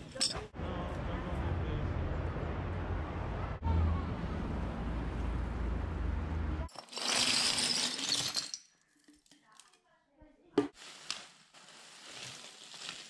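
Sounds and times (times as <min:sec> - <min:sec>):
city traffic rumble: 0:00.0 - 0:06.8
bottle caps clattering onto paper: 0:06.7 - 0:09.4.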